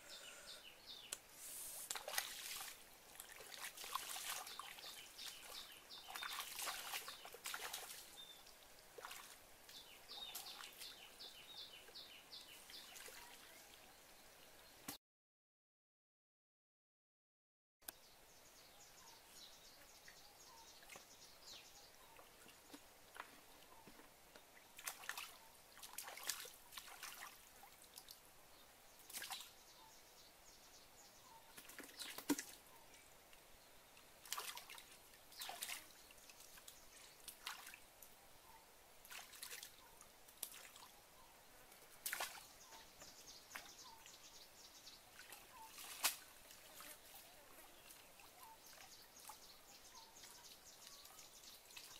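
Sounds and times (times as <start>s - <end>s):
water splashing and dripping: 1.8s - 11.1s, 12.7s - 13.6s, 24.3s - 28.2s, 29.0s - 29.6s, 31.5s - 32.7s, 34.0s - 38.2s, 39.0s - 41.0s, 41.7s - 44.2s, 45.1s - 49.5s.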